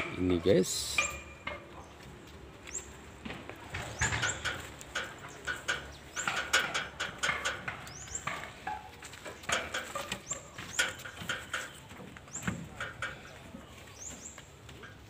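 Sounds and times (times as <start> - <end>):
logs knocking and scuffing: 1.0 - 15.0
bird chirping: 7.7 - 15.0.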